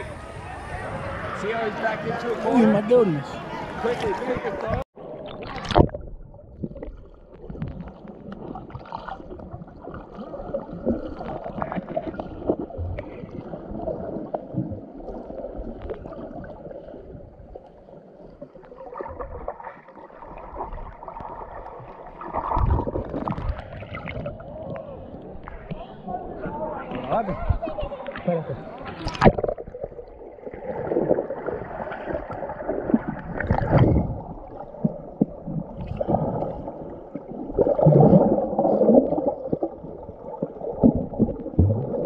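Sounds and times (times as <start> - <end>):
underwater gurgling rumble: 3.4 - 42.0.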